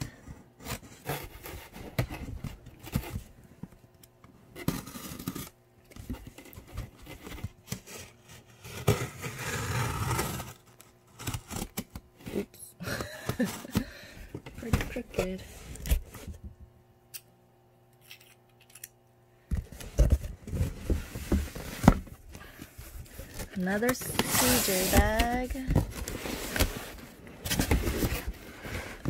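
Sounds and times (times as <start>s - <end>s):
tool scraping cardboard: 0.6s - 3.2s, 6.1s - 12.4s, 19.8s - 29.0s
cardboard rustling and tearing: 4.6s - 12.5s, 19.7s - 29.0s.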